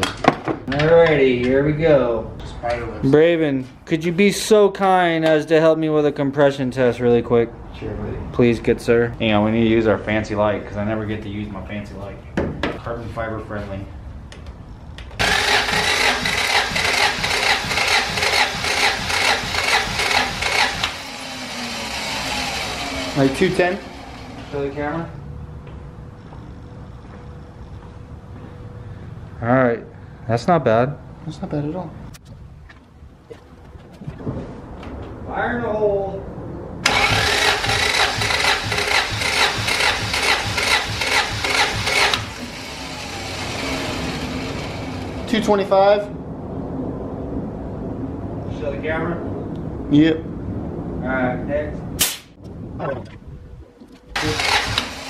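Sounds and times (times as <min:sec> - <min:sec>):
starter motor cranking engine: 0:15.2 - 0:24.8, 0:36.8 - 0:45.3, 0:54.1 - 0:55.0.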